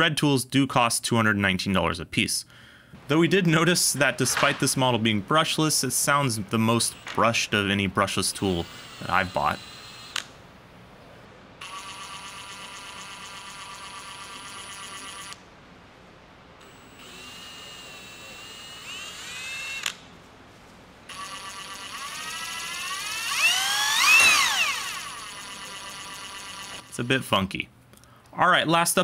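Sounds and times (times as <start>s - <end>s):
impact wrench motor whine: 6.9s - 7.2s, 8.6s - 10.3s, 11.6s - 15.4s, 16.6s - 20.0s, 21.1s - 27.0s.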